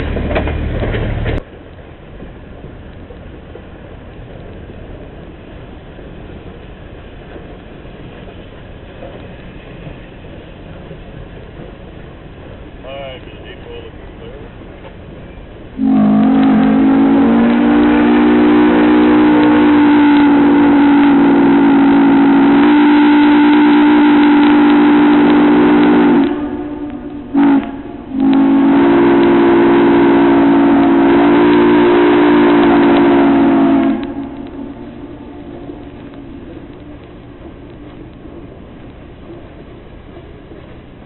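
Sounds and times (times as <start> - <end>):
steam locomotive whistle: 15.8 - 35.8.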